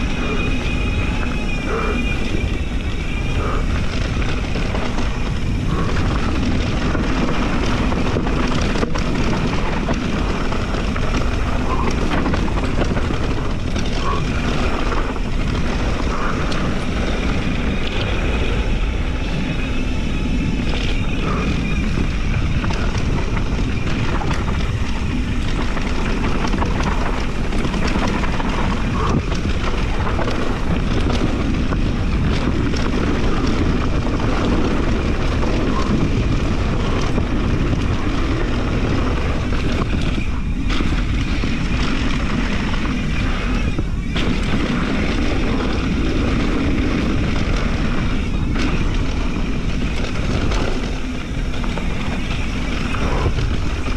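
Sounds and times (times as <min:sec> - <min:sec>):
bike clacks and rattles: 0:00.0 - 0:53.9
low rumble: 0:00.0 - 0:53.9
wind rush on microphone: 0:00.0 - 0:53.9.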